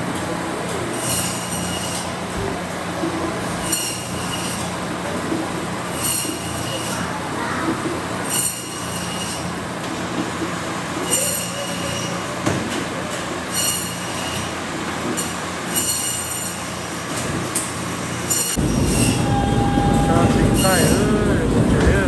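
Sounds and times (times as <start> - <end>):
loud rough noise: 0.0 - 22.0
saw blade squealing: 1.0 - 2.2, 3.6 - 4.7, 5.9 - 7.1, 8.2 - 9.5, 11.0 - 12.4, 13.1 - 14.6, 15.2 - 19.4, 20.3 - 21.2.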